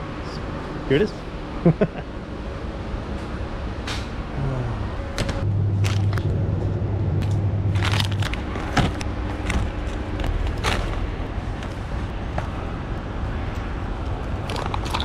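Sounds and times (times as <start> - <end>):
steady low hum: 0.0 - 15.0
groceries knocking and crinkling: 7.7 - 12.6, 14.4 - 15.0.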